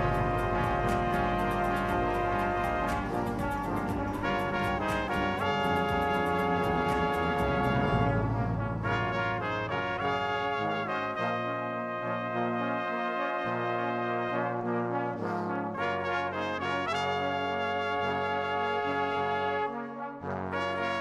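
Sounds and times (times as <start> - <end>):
sharp beats: 0.0 - 9.6
brass-like held chords: 0.0 - 21.0.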